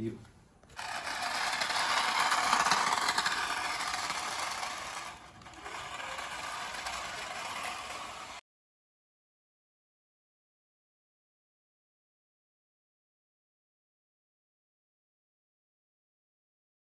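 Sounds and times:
toy car motor whirring: 0.6 - 8.4
plastic wheels rattling on tiles: 0.7 - 8.4.

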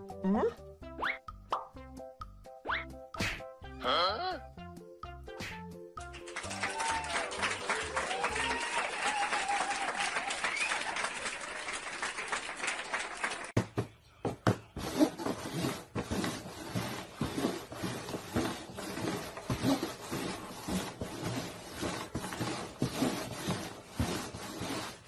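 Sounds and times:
applause-like noise: 6.0 - 13.6.

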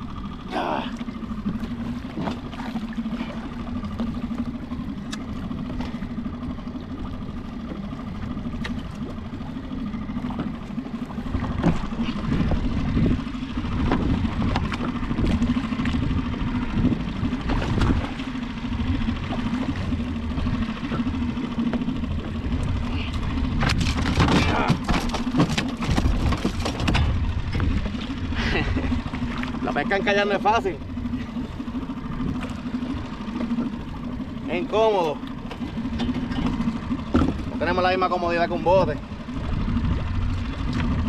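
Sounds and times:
outboard motor humming: 0.0 - 41.0
knocks and rustles: 23.6 - 27.6.

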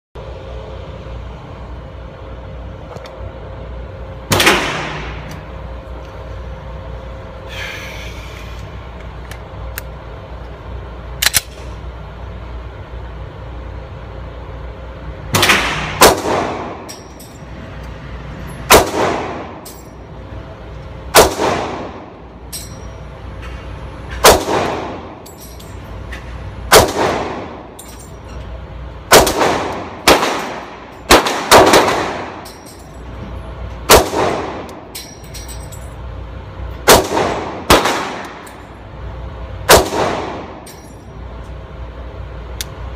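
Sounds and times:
ventilation hum: 0.2 - 42.9
pistol shots echoing indoors: 15.3 - 16.9, 18.7 - 19.7, 21.1 - 22.1, 24.2 - 25.1, 26.7 - 27.6, 29.1 - 32.5, 33.9 - 34.8, 36.8 - 38.5, 39.7 - 40.7.

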